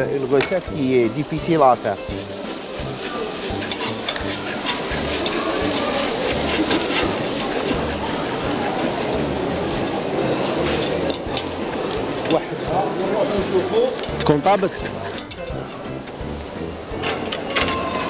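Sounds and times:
sauce sizzling and bubbling in a pot: 0.0s - 17.0s
spoon stirring in a pot: 0.5s - 9.2s.

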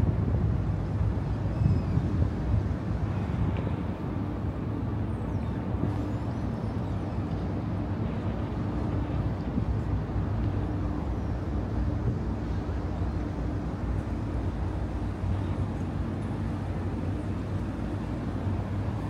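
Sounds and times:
constant hum: 0.0s - 19.0s
outdoor traffic noise: 0.0s - 19.0s.

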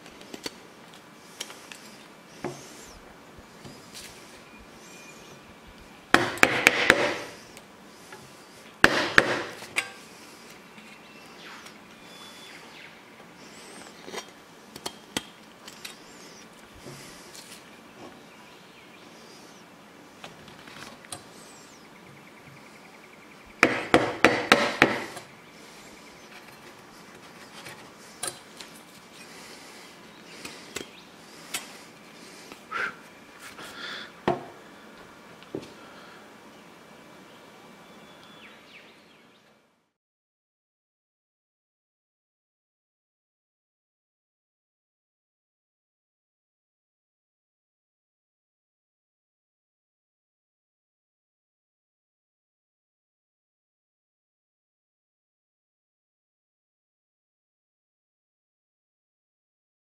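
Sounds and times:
machete chopping wooden stick: 6.2s - 7.4s, 8.8s - 10.0s, 23.6s - 25.2s.

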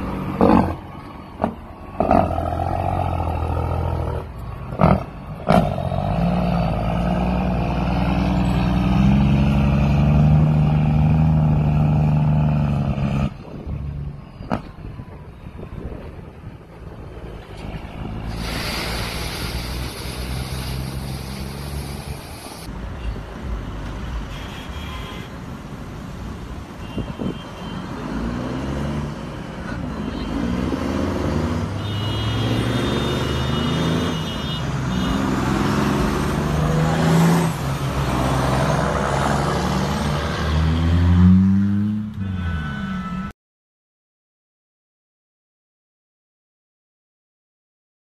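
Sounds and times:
diesel truck engine shifting gears: 0.0s - 15.0s.

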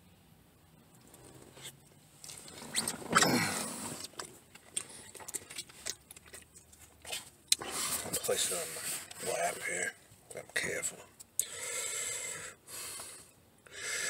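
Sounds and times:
small clicks and rustles: 4.0s - 7.5s.

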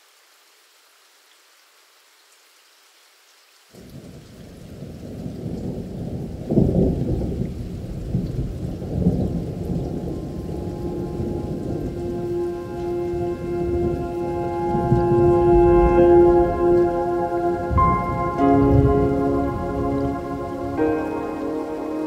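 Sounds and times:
rain: 0.0s - 22.0s
rolling thunder: 3.9s - 22.0s
held musical tones: 10.2s - 22.0s.

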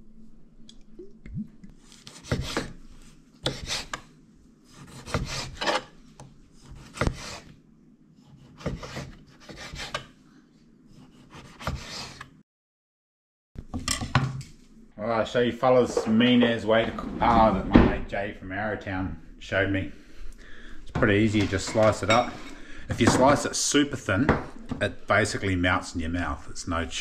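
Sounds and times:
knife slicing on wooden board: 4.7s - 5.9s.

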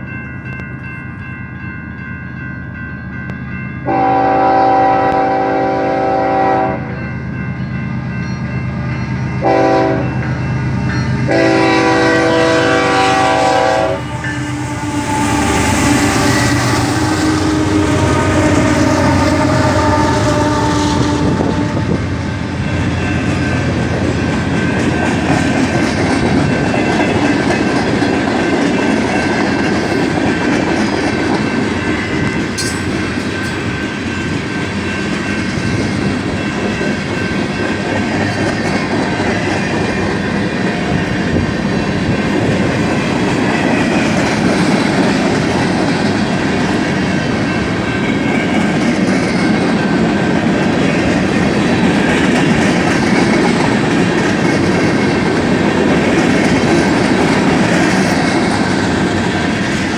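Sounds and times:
diesel locomotive engine drone: 0.0s - 59.9s
freight train rumble and wheel clatter: 0.0s - 59.9s
locomotive horn blasts: 3.8s - 7.0s, 9.4s - 10.2s, 11.3s - 22.0s.

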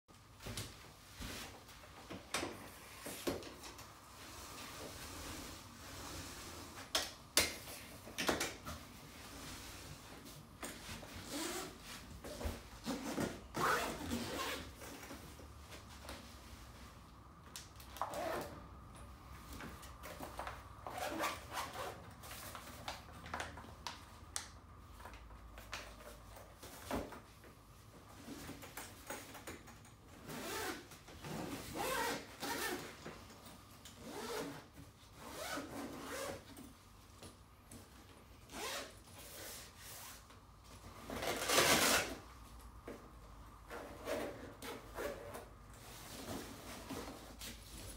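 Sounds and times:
nylon rustling: 8.7s - 17.2s, 30.4s - 36.9s, 37.8s - 42.4s
zips opening and shutting: 11.2s - 11.8s, 12.8s - 14.8s, 30.2s - 33.0s, 38.5s - 40.2s, 41.1s - 42.2s.

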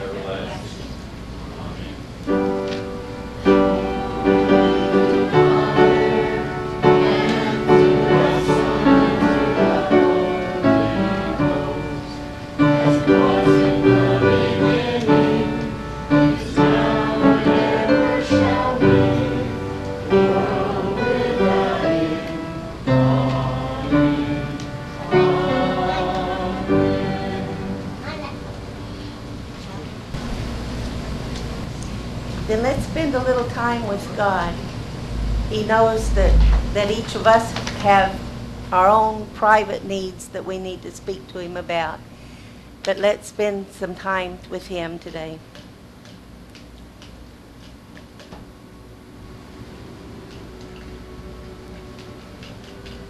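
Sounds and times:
slow piano hymn chords: 2.2s - 29.5s, 33.9s - 38.2s, 49.1s - 53.0s.

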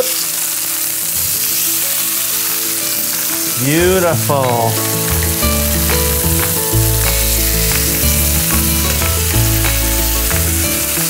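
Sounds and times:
chicken sizzling in a skillet: 0.0s - 11.0s
background music with beat: 3.3s - 11.0s.

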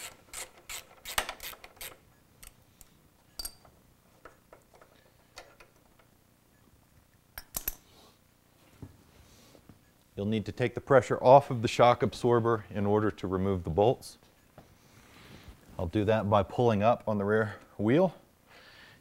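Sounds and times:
metal tools clicking and clinking: 3.3s - 6.1s, 7.4s - 7.9s.

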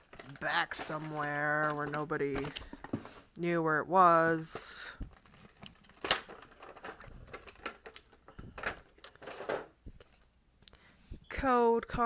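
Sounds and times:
plastic packaging crinkling: 0.0s - 3.2s, 4.4s - 10.3s.

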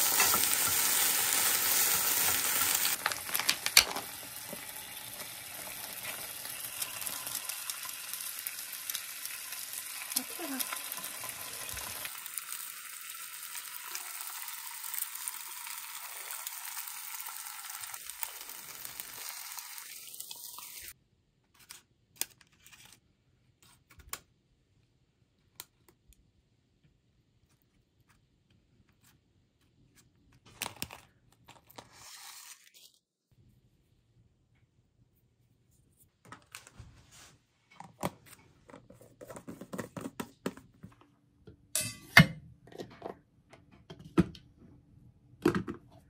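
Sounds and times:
food sizzling in a frying pan: 0.0s - 21.0s
clicks and taps of containers: 37.8s - 41.6s.

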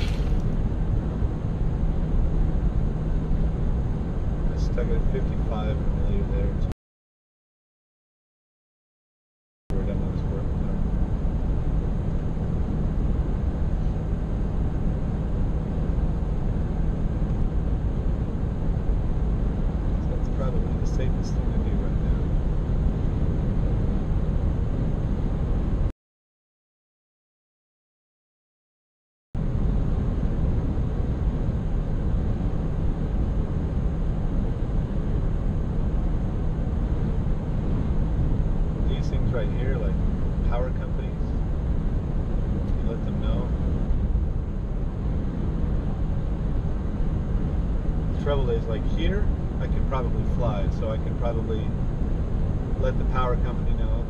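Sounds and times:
vehicle cabin road rumble: 0.0s - 0.8s
road and engine noise in car: 0.0s - 6.7s, 9.7s - 25.9s, 29.4s - 54.0s.

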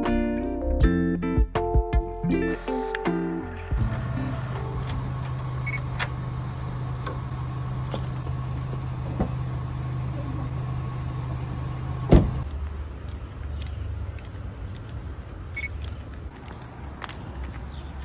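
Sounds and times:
low mechanical hum: 3.5s - 17.4s
car door latch clunk: 12.0s - 12.4s.

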